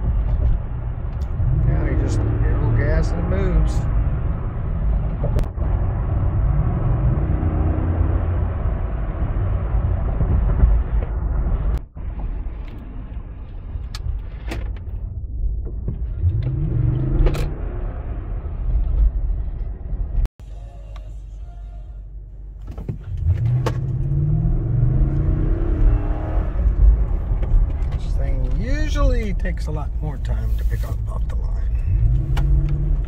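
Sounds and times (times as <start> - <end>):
road and engine rumble: 0.0 - 33.0
engine rising in pitch: 23.1 - 27.1.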